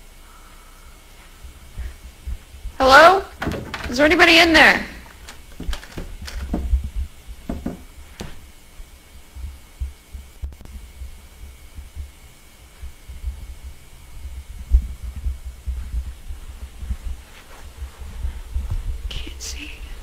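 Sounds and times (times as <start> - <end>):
muffled thumping and rumble: 1.4 - 2.8, 5.5 - 8.5, 9.3 - 20.0.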